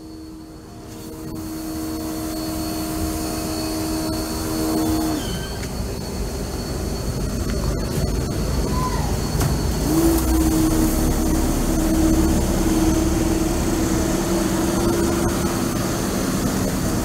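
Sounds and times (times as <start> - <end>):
steady hum: 0.0 - 17.0
low rumble: 6.2 - 17.0.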